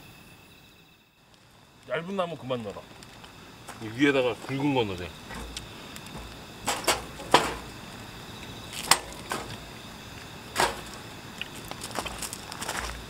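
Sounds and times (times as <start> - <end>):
wood fire crackling and popping: 1.2 - 13.0.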